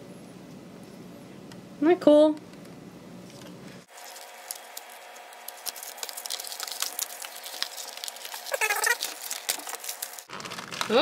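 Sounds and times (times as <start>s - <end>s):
packaging rustling and clicking: 3.4s - 11.0s.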